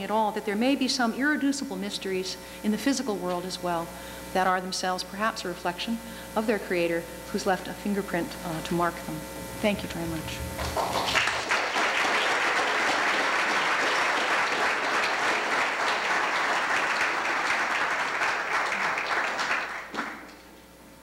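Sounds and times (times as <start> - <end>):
audience applauding: 10.6 - 20.4.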